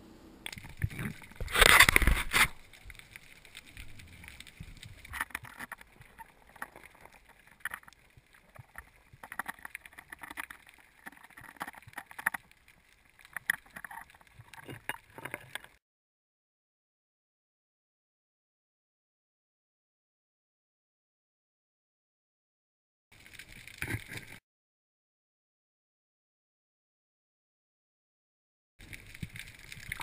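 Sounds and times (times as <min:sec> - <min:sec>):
faint underwater clicks and scrapes: 0:00.4 - 0:15.8, 0:23.1 - 0:24.4, 0:28.8 - 0:30.0.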